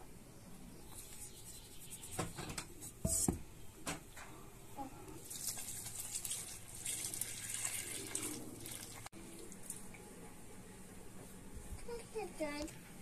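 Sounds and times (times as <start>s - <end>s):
water pouring into flour: 5.2s - 9.8s.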